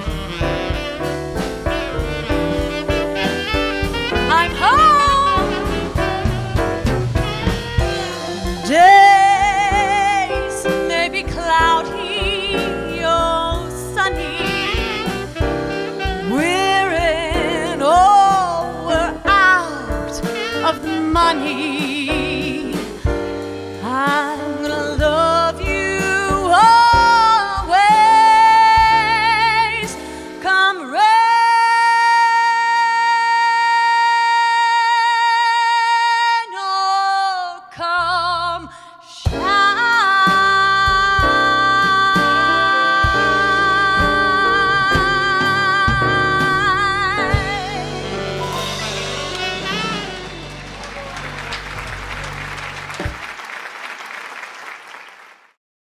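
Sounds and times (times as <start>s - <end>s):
upright bass: 0.0s - 30.0s, 40.3s - 53.3s
woman singing jazz: 0.0s - 50.6s
piano: 0.0s - 55.3s.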